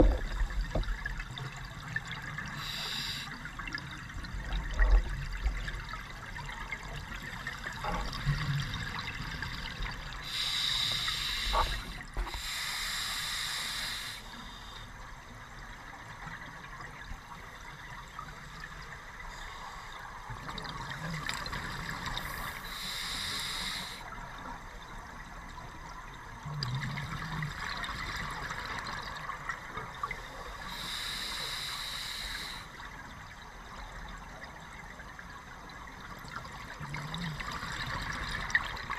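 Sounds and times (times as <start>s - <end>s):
steady hiss: 2.4s - 3.6s, 10.1s - 15.0s, 21.7s - 24.4s, 30.2s - 32.9s
exhaled bubbles underwater: 25.8s - 30.9s, 36.0s - 38.9s.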